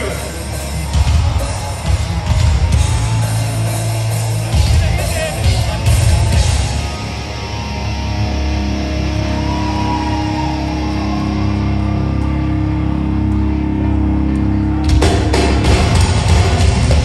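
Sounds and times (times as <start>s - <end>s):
drums crashing: 0.0s - 7.0s, 14.8s - 17.0s
bass guitar: 0.0s - 17.0s
distorted electric guitar chords: 0.0s - 17.0s.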